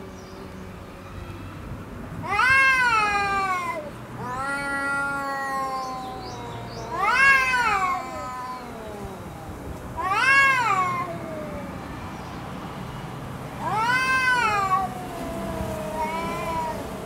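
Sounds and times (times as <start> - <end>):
cats yowling: 0.8 - 12.9, 13.6 - 17.0.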